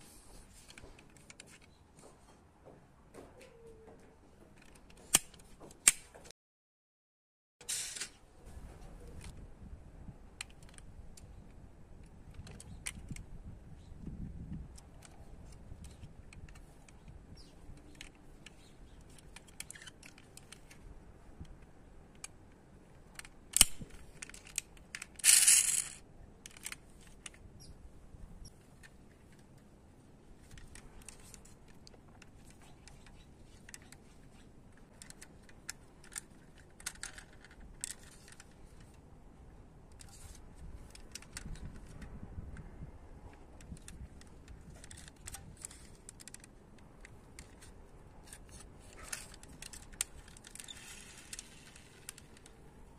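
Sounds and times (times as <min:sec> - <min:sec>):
toy cars clicking and rattling: 0:17.8 - 0:20.8, 0:23.0 - 0:27.4, 0:30.4 - 0:39.0, 0:43.6 - 0:52.6.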